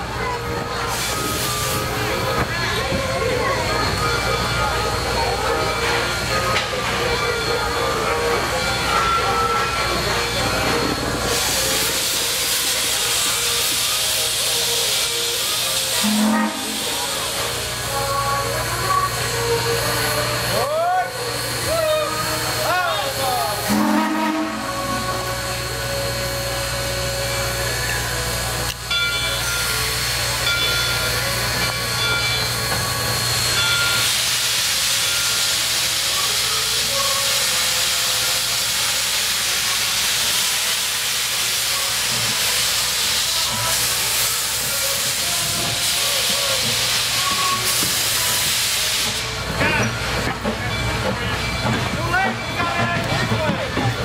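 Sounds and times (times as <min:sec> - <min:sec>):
steam hissing from cylinder cocks: 0:00.4 - 0:03.0, 0:03.6 - 0:54.0
steam locomotive whistle toot: 0:07.4 - 0:32.5, 0:33.3 - 0:50.3.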